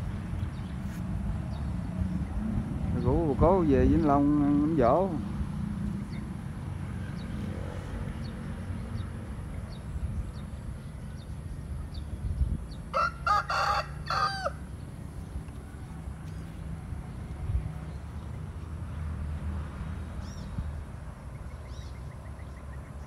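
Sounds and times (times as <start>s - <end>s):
rooster crowing: 12.9s - 14.7s.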